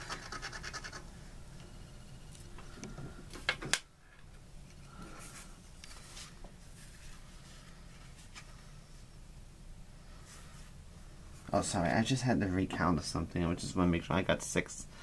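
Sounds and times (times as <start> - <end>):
fingers scraping cardboard ticket: 0.0 - 1.1.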